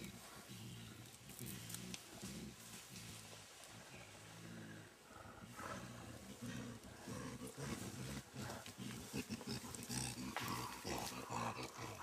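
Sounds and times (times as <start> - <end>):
leaves and stems crackling: 0.0 - 4.3
gorilla low rough vocalizing: 4.2 - 12.0.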